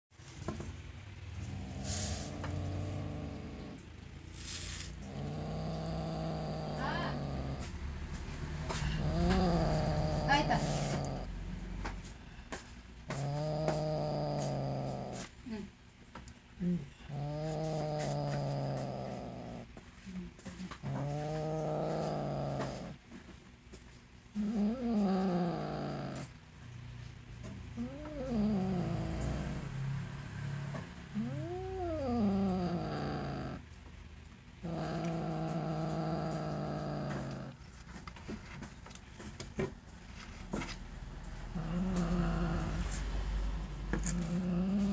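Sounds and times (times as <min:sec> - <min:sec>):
cat growling yowls: 0:31.2 - 0:33.6.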